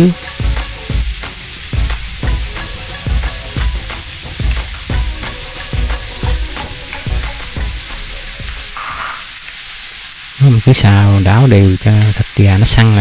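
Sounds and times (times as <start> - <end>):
food sizzling: 0.0 - 13.0
metal ladle scraping a wok: 0.2 - 9.4.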